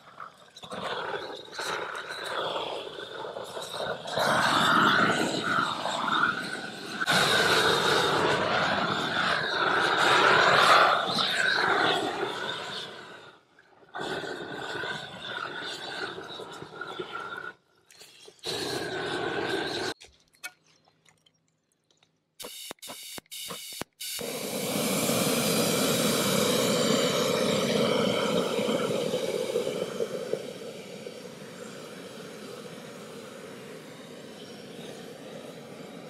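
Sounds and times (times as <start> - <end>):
propane torch roaring: 0.0 - 17.7, 18.4 - 20.0, 24.2 - 36.0.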